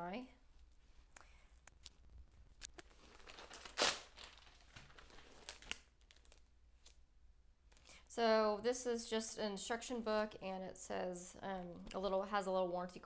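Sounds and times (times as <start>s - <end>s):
plastic bag crinkling: 2.6s - 6.5s.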